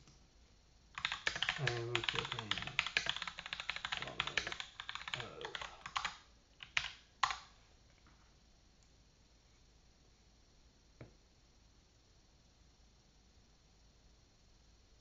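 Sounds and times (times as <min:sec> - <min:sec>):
typing on computer keyboard: 0:01.0 - 0:07.5.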